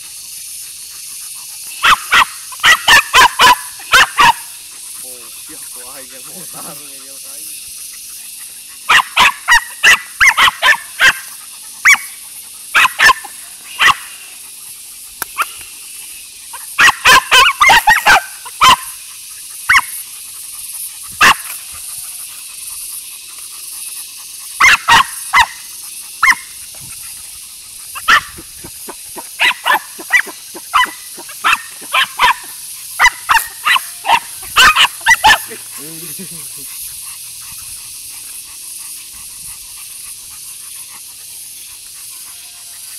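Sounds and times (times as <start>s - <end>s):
dog barking sharply: 1.8s - 4.4s, 29.4s - 35.4s.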